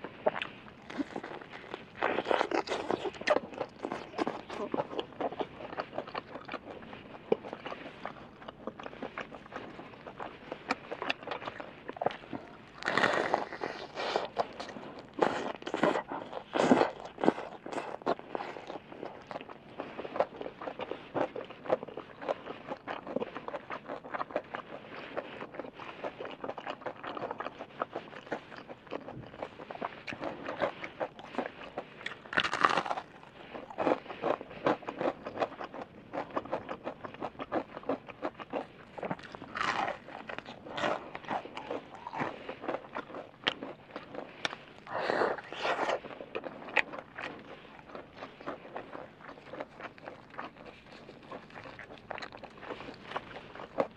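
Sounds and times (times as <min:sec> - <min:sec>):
crunchy chewing of fried chicken: 0:00.0 - 0:53.9.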